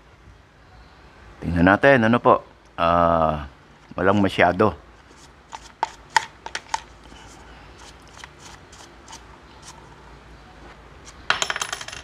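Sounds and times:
brush clicking against plastic: 5.5 - 9.8.

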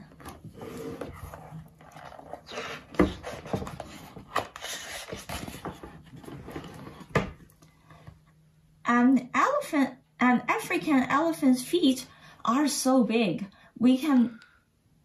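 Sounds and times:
book pages rustling: 0.0 - 7.2.

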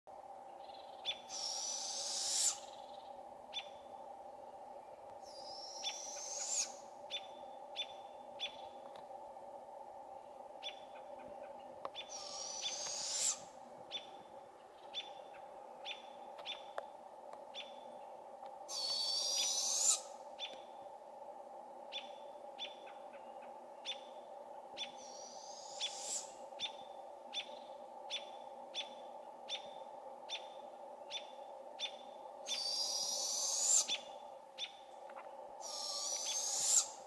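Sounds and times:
robins chirping: 0.6 - 3.8, 5.2 - 8.8, 10.6 - 16.8, 18.7 - 20.7, 24.8 - 37.0
owls hiss-screech calls: 1.1 - 2.8, 5.2 - 6.9, 12.0 - 13.6, 18.7 - 20.2, 24.9 - 26.7, 32.4 - 34.1, 35.6 - 37.0.

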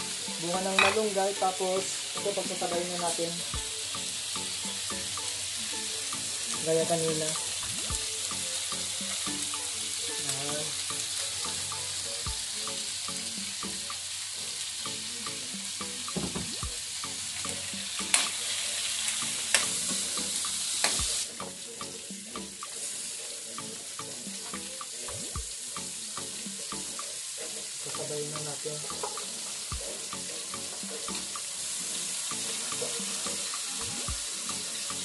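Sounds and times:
meat and onions sizzling: 0.0 - 35.0
metal spatula clanking on pan: 0.7 - 1.1.

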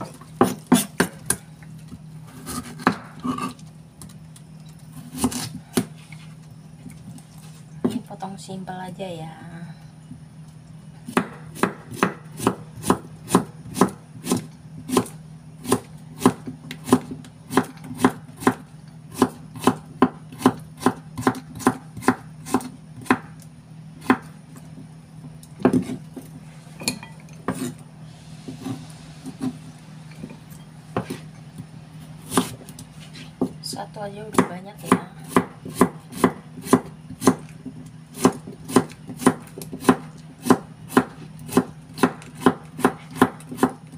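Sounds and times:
knife chopping on wooden board: 0.0 - 1.4, 2.3 - 3.5, 5.0 - 5.9, 11.1 - 23.4, 24.0 - 24.4, 25.6 - 26.0, 27.4 - 27.8, 31.0 - 31.2, 32.3 - 33.6, 34.3 - 43.8.

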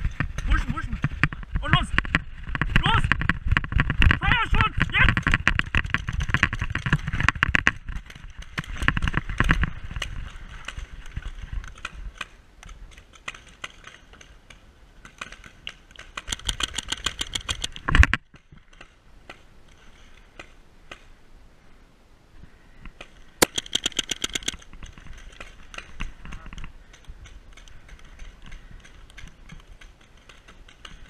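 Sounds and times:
gear rattling: 0.0 - 19.0, 23.4 - 31.0
rapid clicks: 11.6 - 18.9, 23.0 - 31.0.

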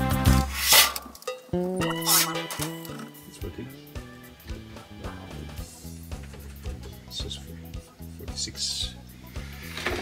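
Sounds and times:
electronic keyboard music: 1.6 - 6.1.

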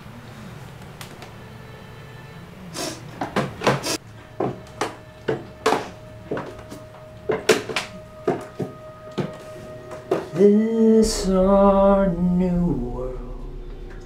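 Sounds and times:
low room hum: 0.0 - 14.0
held musical note: 4.0 - 14.0.

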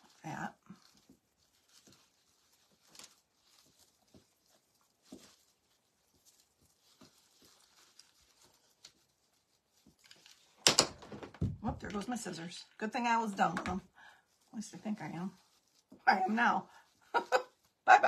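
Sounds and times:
rustling of dry moss and vine: 0.0 - 10.6, 11.6 - 18.0.

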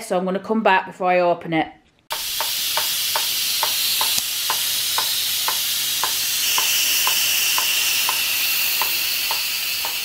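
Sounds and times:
light ticking: 2.1 - 10.0
pressure cooker steam hiss: 2.1 - 10.0.

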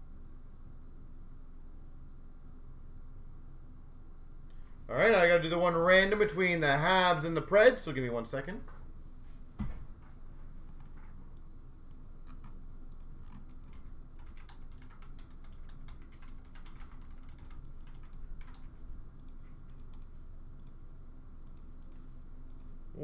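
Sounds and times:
soft thump: 9.6 - 9.9
keyboard typing clicks: 10.7 - 20.8, 21.4 - 22.8.

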